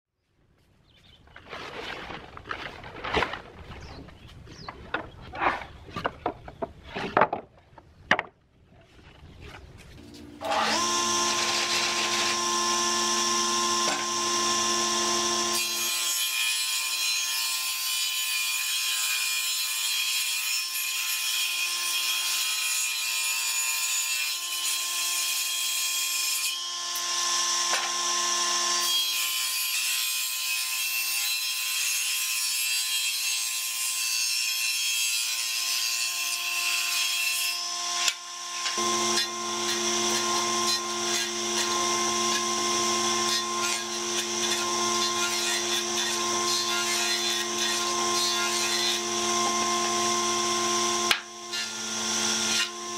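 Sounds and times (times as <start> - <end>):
wooden boards knocking: 5.9 - 8.4
jointer-planer whine: 10.0 - 15.8, 27.0 - 28.8, 37.8 - 52.9
planer cutting wood hiss: 10.4 - 15.8, 38.1 - 52.9.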